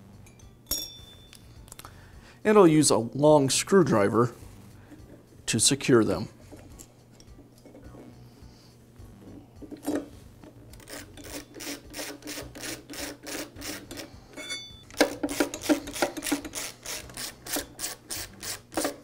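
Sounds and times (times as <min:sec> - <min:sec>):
screwdriver scraping strokes: 0:10.7 - 0:19.0
brief metallic ring: 0:14.4 - 0:14.9.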